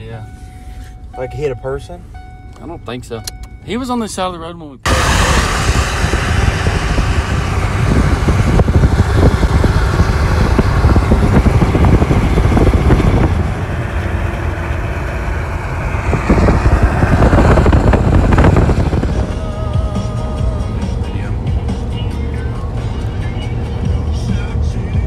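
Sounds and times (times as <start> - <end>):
vehicle road rumble: 0.0 - 25.0
rushing wind: 4.9 - 20.0.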